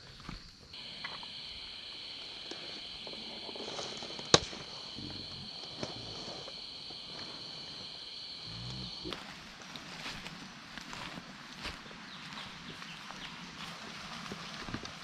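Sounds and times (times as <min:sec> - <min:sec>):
sharp crack: 0:04.3 - 0:04.8
high-pitched insect buzz: 0:07.8 - 0:09.4
footsteps on trail: 0:09.1 - 0:15.0.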